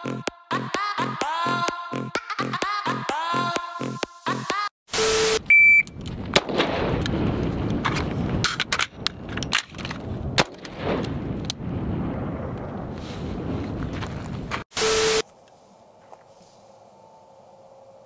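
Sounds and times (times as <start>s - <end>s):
high electronic beep: 5.0s - 5.9s, 14.8s - 15.2s
sharp cracks: 5.9s - 11.7s
wind buffeting microphone: 5.9s - 14.7s.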